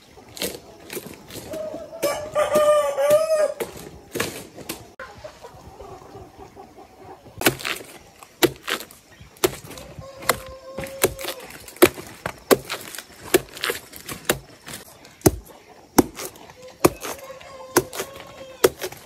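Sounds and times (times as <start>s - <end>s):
sharp chopping strokes: 7.4s - 19.0s.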